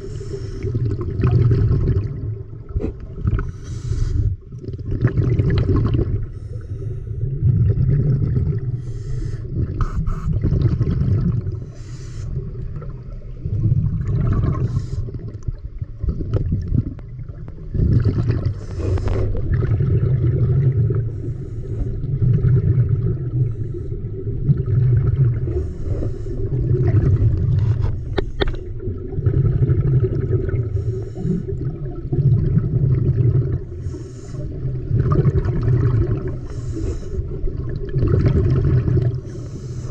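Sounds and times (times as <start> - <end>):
underwater water rush: 0.0 - 39.9
faint crackles: 14.6 - 19.8.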